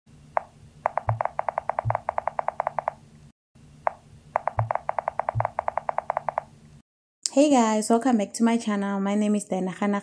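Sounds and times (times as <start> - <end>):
bright rapid ticks: 0.4 - 3.0, 3.9 - 6.5.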